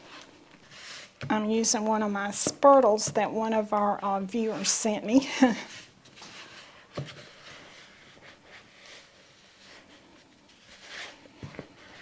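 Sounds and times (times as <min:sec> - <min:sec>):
soft scraping and squishing: 0:00.0 - 0:01.5, 0:04.4 - 0:12.0.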